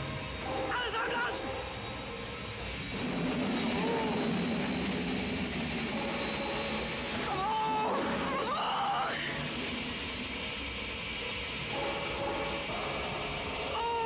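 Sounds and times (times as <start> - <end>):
compressed air hissing into tanks: 8.8 - 13.8.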